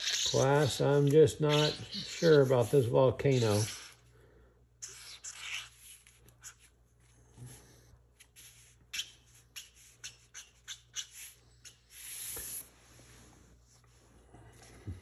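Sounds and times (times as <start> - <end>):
marker scratching on cardboard: 0.0 - 4.0, 4.8 - 6.7, 8.2 - 12.7.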